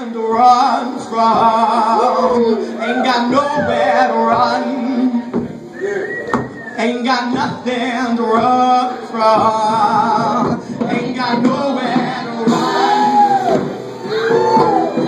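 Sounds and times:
man and woman singing together: 0:00.0 - 0:15.0
upright bass: 0:06.8 - 0:15.0.

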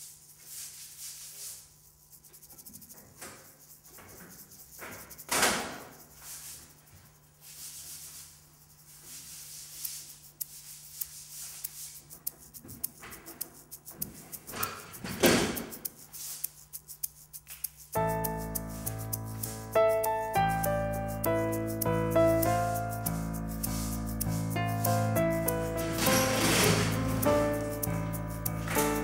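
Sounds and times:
painting tool scraping canvas: 0:00.0 - 0:17.1, 0:23.6 - 0:29.0.

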